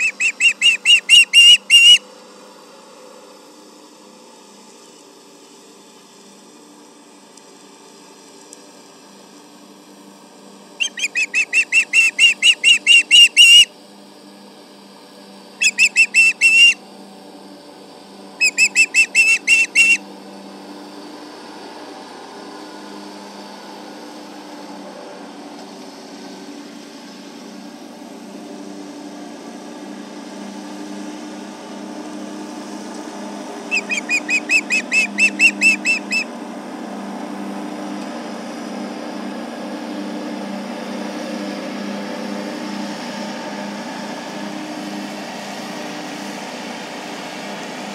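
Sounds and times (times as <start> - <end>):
tractor engine running: 0.0 - 2.0, 10.8 - 13.7, 32.8 - 36.3
osprey whistled alarm calls: 0.0 - 2.1, 10.8 - 13.7, 15.6 - 16.8, 18.4 - 20.0, 33.7 - 36.3.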